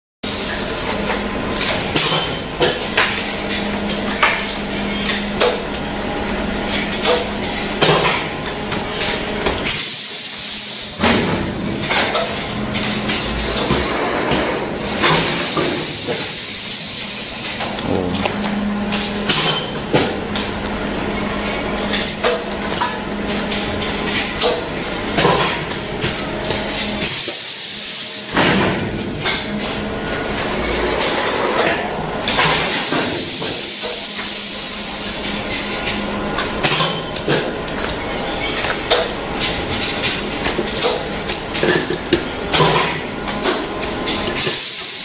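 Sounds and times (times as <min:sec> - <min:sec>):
machine hum: 0:12.4 - 0:25.1.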